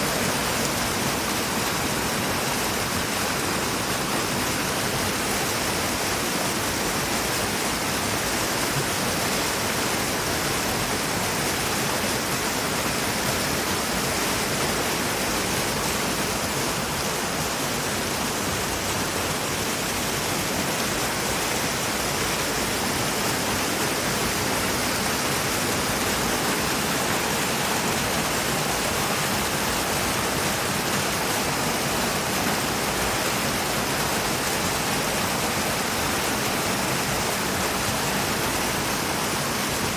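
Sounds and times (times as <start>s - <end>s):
waterfall rushing and splashing: 0.0s - 39.9s.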